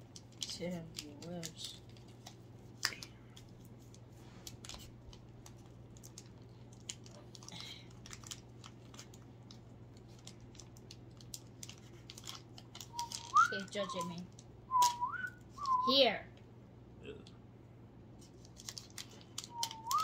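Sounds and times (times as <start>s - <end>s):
plastic wrapper crinkling: 0.0s - 15.8s, 18.2s - 20.0s
wrapper snap: 4.5s - 15.8s, 18.3s - 20.0s.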